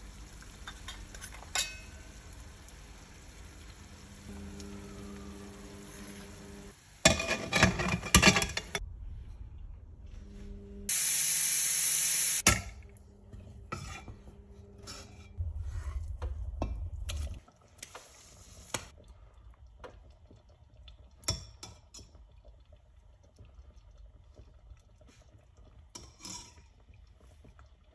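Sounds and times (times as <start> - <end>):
low steady hum: 0.0 - 10.9
ladle clinking and scraping pot: 0.6 - 2.0, 7.0 - 8.8, 13.4 - 16.0, 26.0 - 26.7
pressure cooker hissing steam: 10.9 - 12.4.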